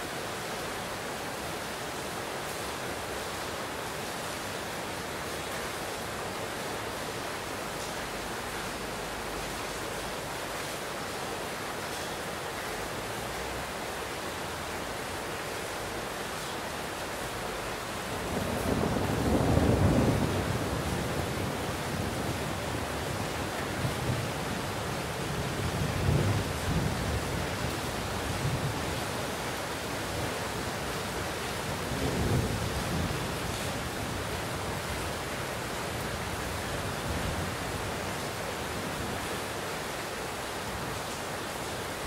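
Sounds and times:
heavy rain: 0.0s - 42.0s
distant rolling thunder: 18.2s - 29.0s, 31.6s - 34.3s.

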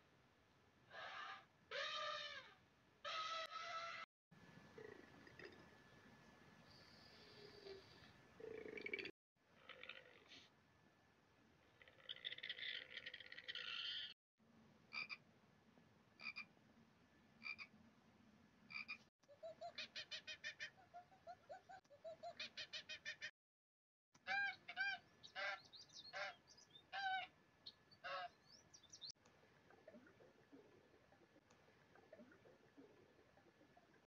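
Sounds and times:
loud arched animal calls: 0.9s - 4.1s, 11.8s - 14.2s.

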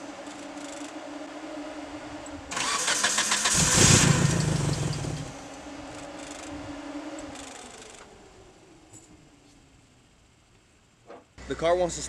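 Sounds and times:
car engine cranking on starter: 2.5s - 5.4s.

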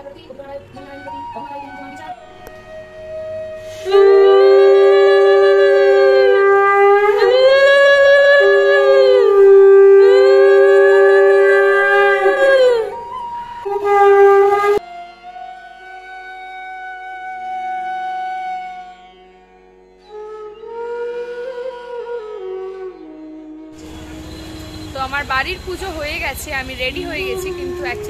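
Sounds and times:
quiet music: 0.0s - 18.9s
conch shell blasts: 2.2s - 12.5s.

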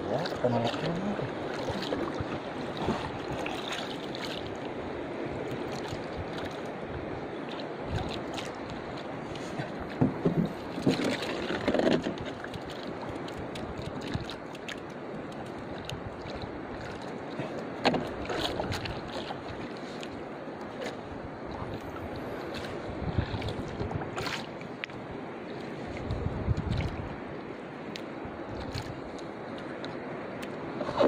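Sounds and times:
wind on microphone: 0.0s - 14.5s, 21.0s - 25.2s, 25.8s - 27.4s
water lapping against canoe hull: 0.0s - 31.0s
knocks on hull: 9.9s - 12.2s.

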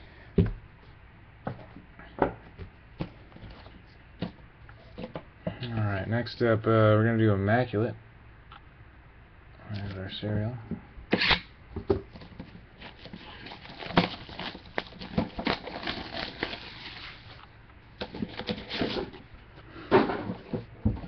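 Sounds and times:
plastic shrink-wrap crinkling: 12.8s - 17.4s.

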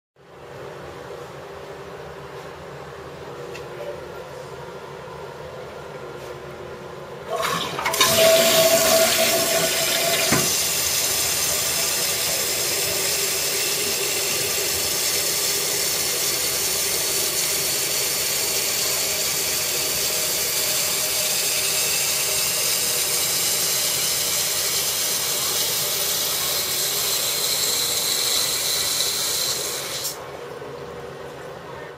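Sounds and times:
toilet flush valve click: 7.3s - 16.0s
toilet flushing water rush: 7.3s - 30.2s
toilet tank refilling: 7.3s - 30.2s.

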